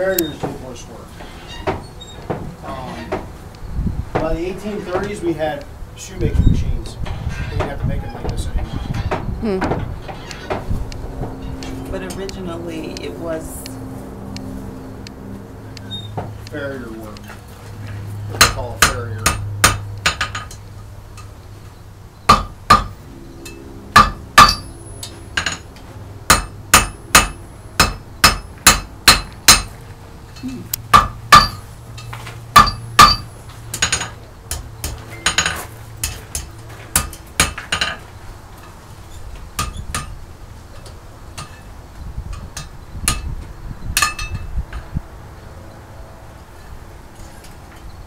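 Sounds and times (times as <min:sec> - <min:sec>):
hammer striking anvil: 0:18.4 - 0:20.6, 0:22.3 - 0:25.6, 0:26.3 - 0:29.7, 0:30.9 - 0:31.6, 0:32.6 - 0:38.0.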